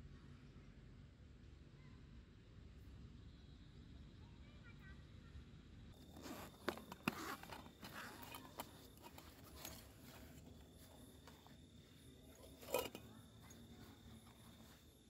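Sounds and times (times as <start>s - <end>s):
faint insect drone: 0.0s - 15.0s
light rustling: 6.0s - 15.0s
metal cookware clinking: 12.2s - 14.6s.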